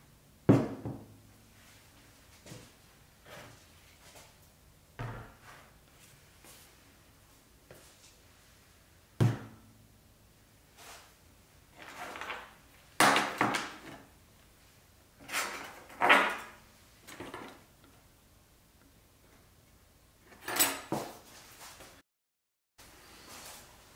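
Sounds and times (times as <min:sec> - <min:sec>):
objects thudding on workbench: 0:00.5 - 0:01.1, 0:09.2 - 0:09.6, 0:11.9 - 0:14.0.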